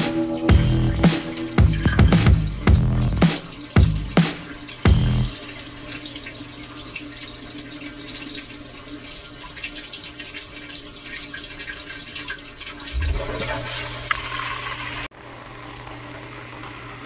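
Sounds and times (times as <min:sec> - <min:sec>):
dishwasher low hum: 0:00.0 - 0:15.1
water trickling: 0:00.0 - 0:15.1
water spraying against dishes: 0:01.1 - 0:06.1.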